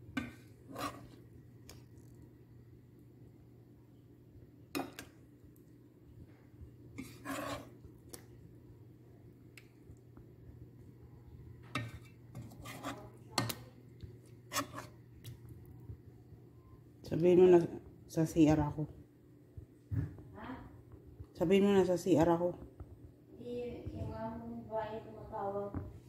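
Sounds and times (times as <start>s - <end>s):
faint steady hum: 0.0s - 26.0s
spoon scraping and clinking pot: 0.1s - 1.2s, 7.0s - 7.8s, 11.7s - 13.6s, 14.5s - 15.0s.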